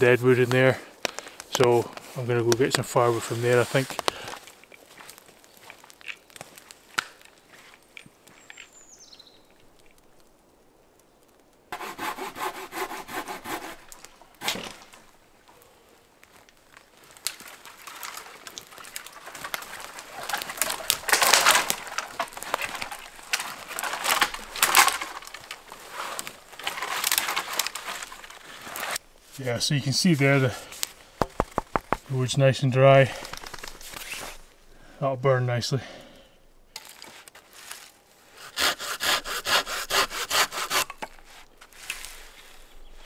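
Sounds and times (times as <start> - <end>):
footsteps on forest floor: 0.4 - 9.0, 16.2 - 29.4, 30.1 - 32.2, 36.8 - 38.1
hand saw cutting wood: 11.7 - 14.8, 38.4 - 41.2.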